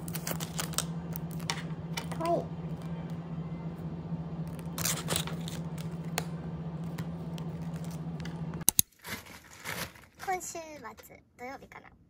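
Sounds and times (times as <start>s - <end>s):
plastic wrapping rustling: 0.0s - 3.2s, 4.5s - 6.2s, 6.8s - 10.6s
steady low hum: 0.0s - 8.7s.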